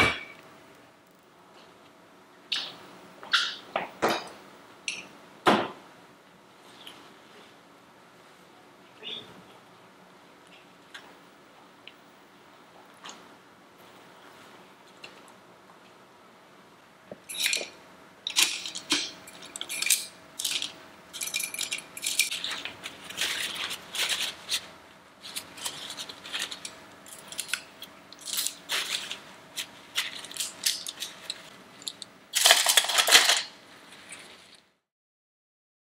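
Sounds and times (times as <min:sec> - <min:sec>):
paintbrushes clattering against glass: 0:17.3 - 0:24.7, 0:29.9 - 0:33.5.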